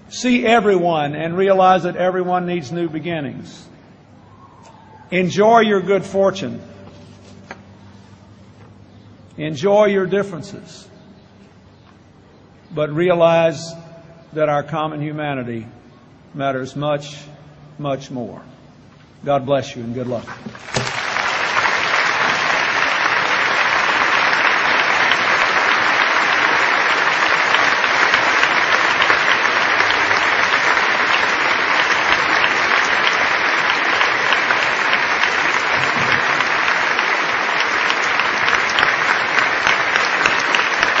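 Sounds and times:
large audience applauding: 20.6s - 41.0s.

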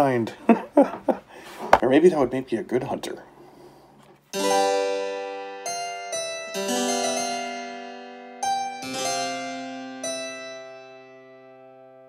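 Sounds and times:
keyboard chords ringing: 4.3s - 12.0s.

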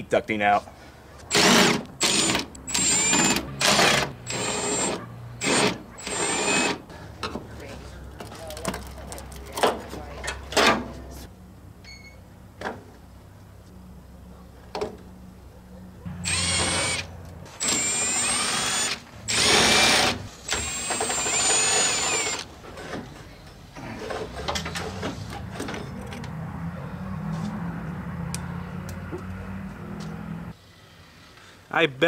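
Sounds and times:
cordless drill whining: 1.3s - 6.8s, 16.2s - 22.5s.

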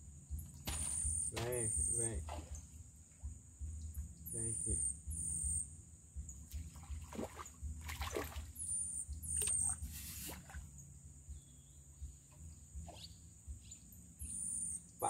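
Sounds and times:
high insect drone: 0.0s - 15.0s
bird chirps: 3.9s - 5.7s, 8.6s - 10.2s, 12.8s - 15.0s.

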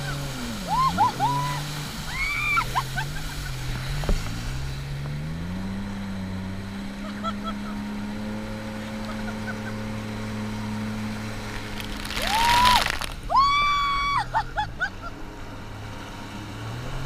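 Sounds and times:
water rushing past hull: 0.0s - 4.8s, 8.2s - 14.9s
jet ski engine running: 0.0s - 17.0s.

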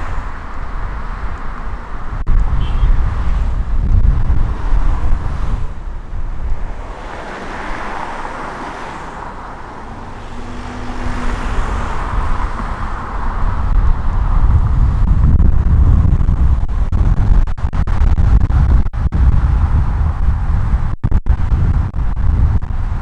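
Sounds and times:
car road rumble: 0.0s - 23.0s.

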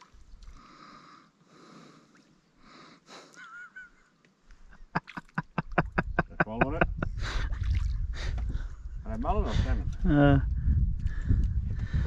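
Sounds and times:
soft slow breathing: 0.4s - 3.4s, 10.5s - 12.0s.

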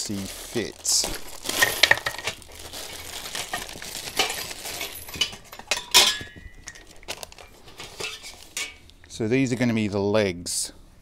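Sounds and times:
metal parts clinking and knocking: 1.0s - 8.8s.

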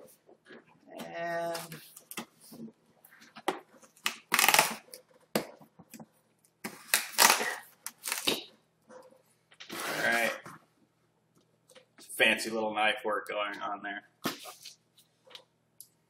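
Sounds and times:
tape tearing: 3.9s - 5.0s, 6.6s - 8.5s, 9.6s - 10.4s.

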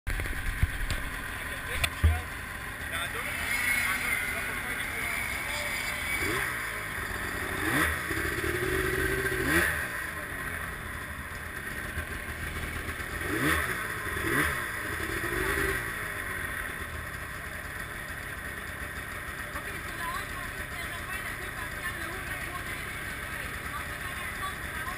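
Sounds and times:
snowmobile engine revving: 0.3s - 17.2s.

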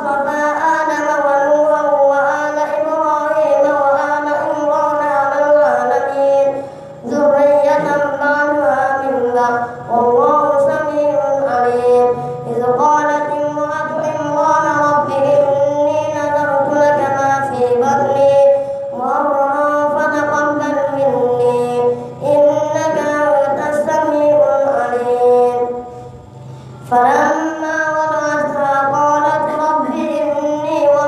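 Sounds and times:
boy reciting melodically: 0.0s - 31.0s
boy breathing: 6.6s - 7.1s, 12.2s - 12.5s, 18.5s - 19.0s, 25.7s - 26.9s.

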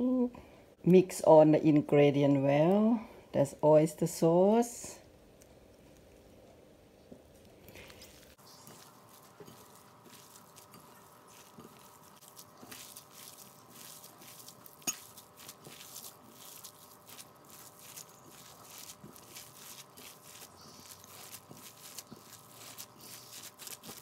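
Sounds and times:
squelching of mixed filling: 7.2s - 24.0s.

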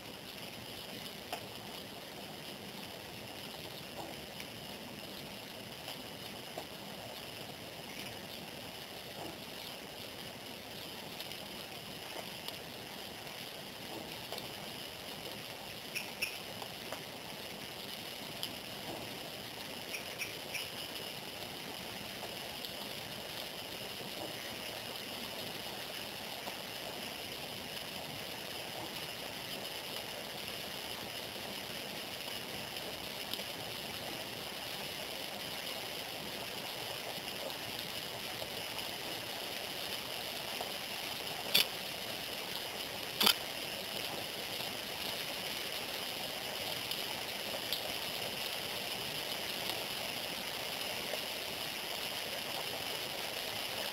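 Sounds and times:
steady background hiss: 0.0s - 53.9s.

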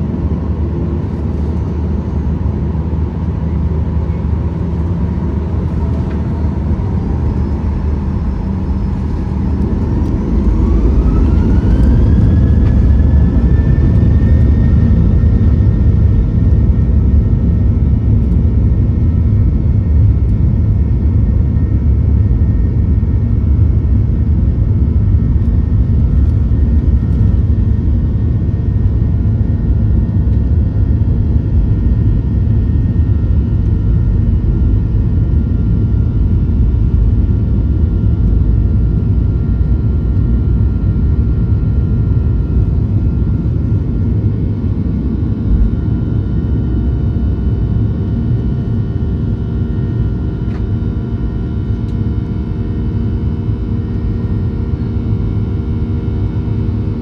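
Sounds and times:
heavy rumble of takeoff roll: 0.0s - 57.0s
jet engines spooling up: 4.4s - 15.8s.

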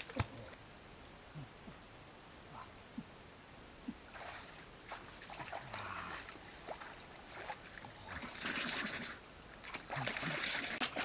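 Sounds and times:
hands splashing stream water: 4.1s - 11.0s.

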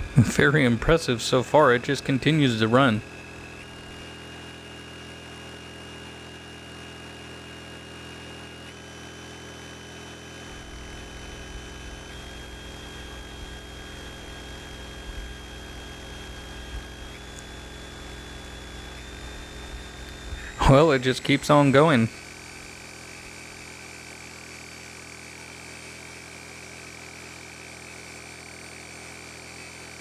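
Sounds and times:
generator running: 0.0s - 30.0s
high motor whine: 0.0s - 30.0s
deeper hum: 10.4s - 23.6s.

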